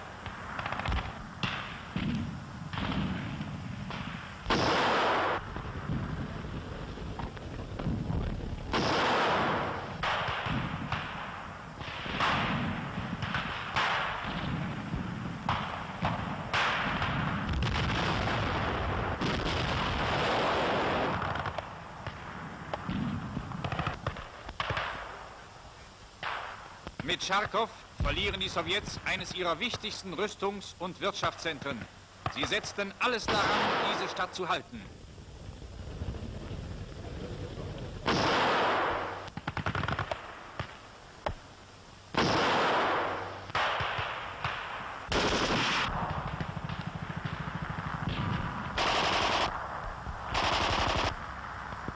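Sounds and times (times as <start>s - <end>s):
gunshots and gunfire: 0.2s - 5.5s, 8.7s - 14.7s, 22.8s - 25.0s, 32.2s - 34.3s, 38.0s - 40.8s, 42.2s - 49.6s, 50.3s - 51.2s
machine-gun fire: 0.3s - 5.8s, 8.7s - 21.6s, 38.0s - 40.8s, 42.1s - 49.7s, 50.3s - 51.2s
loud explosion blast: 14.2s - 21.4s
low rumble: 34.8s - 38.1s.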